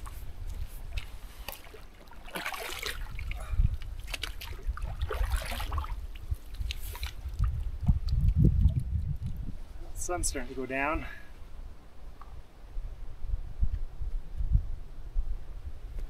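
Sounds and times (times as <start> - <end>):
water splashing and sloshing: 0.0 - 10.8
wind rumbling on microphone: 0.0 - 16.0.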